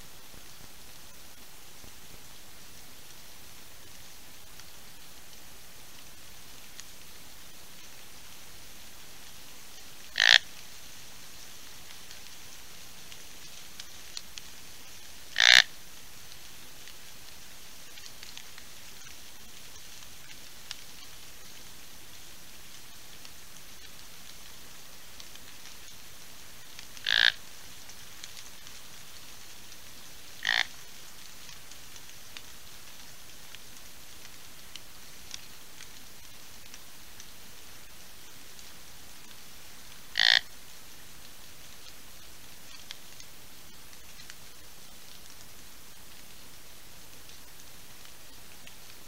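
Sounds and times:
steady rain falling: 0.0s - 49.0s
raindrop ticks: 0.1s - 49.0s
animal calls: 10.1s - 10.5s, 15.3s - 15.7s, 27.0s - 27.4s, 30.4s - 30.8s, 40.1s - 40.5s.

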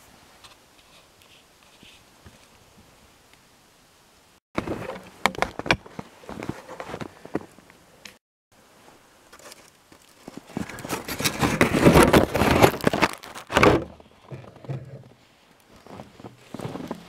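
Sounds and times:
footsteps crunching in snow: 5.6s - 7.6s, 9.4s - 17.0s.

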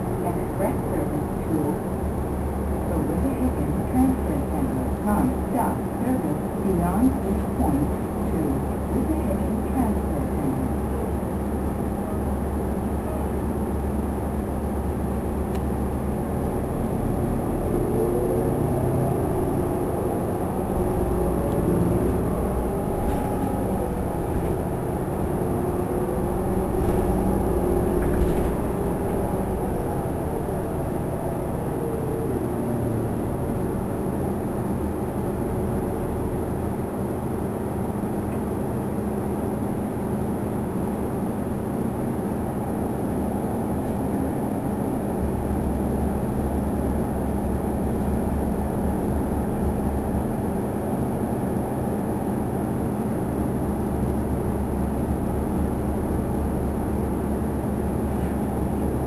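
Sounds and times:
bus engine running: 0.0s - 59.0s
rising and falling whine: 16.1s - 35.9s.

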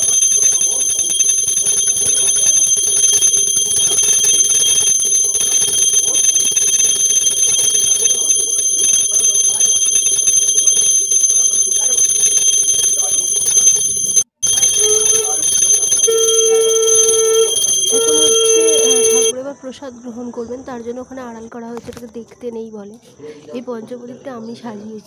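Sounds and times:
hand bell ringing: 0.0s - 19.3s.

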